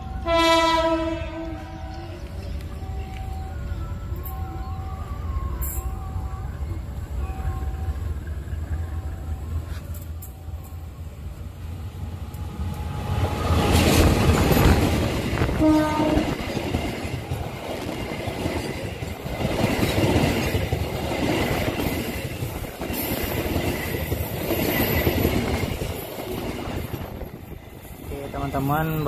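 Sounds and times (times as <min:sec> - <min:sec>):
train horn toot: 0:00.0 - 0:02.2, 0:15.5 - 0:16.5.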